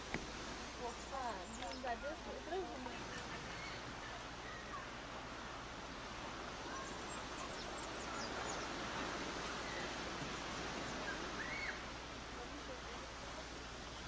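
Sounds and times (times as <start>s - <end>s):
outdoor ambient hiss: 0.0s - 14.0s
faint high bird chirps: 3.5s - 4.9s, 10.9s - 11.9s.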